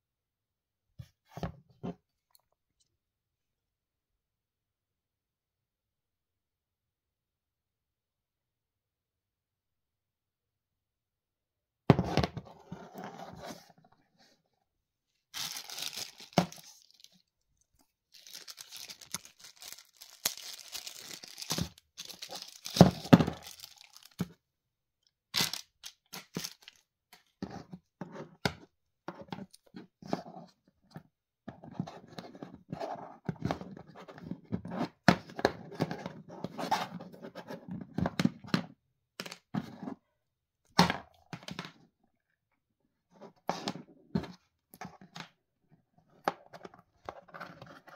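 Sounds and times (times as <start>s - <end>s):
plastic packaging crinkling and tearing: 15.4s - 17.2s, 18.1s - 24.3s, 25.4s - 26.8s.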